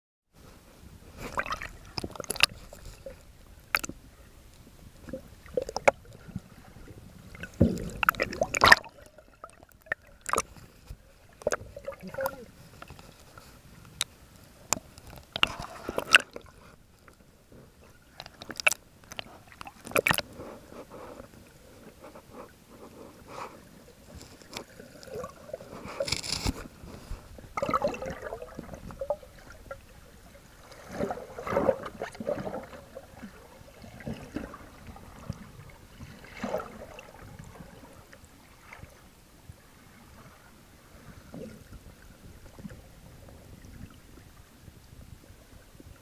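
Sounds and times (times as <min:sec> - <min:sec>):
underwater moving water: 0:00.4 - 0:46.0
bubbling gurgles: 0:05.0 - 0:10.4, 0:27.4 - 0:38.0.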